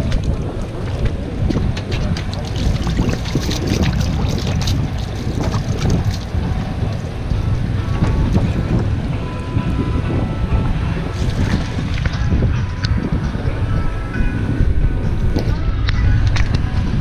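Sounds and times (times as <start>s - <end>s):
low rumble: 0.0s - 17.0s
wind on microphone: 0.0s - 17.0s
hands splashing in bucket: 1.5s - 6.3s.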